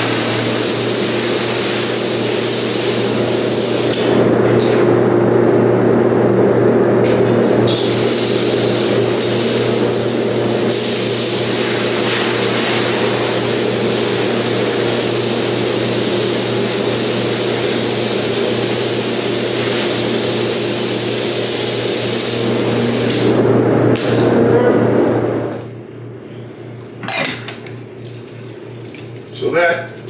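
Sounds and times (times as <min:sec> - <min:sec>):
spray gun air hissing: 0:00.0 - 0:04.1, 0:07.7 - 0:23.2
machine hum: 0:00.0 - 0:20.6, 0:22.3 - 0:29.3.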